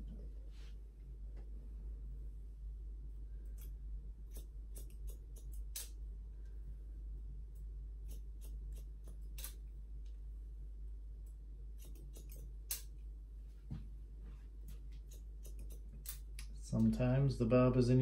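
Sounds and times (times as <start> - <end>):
low steady hum: 0.0 - 18.0
scissors snipping hair: 3.5 - 6.0, 8.0 - 9.6, 11.7 - 13.0, 14.7 - 16.9.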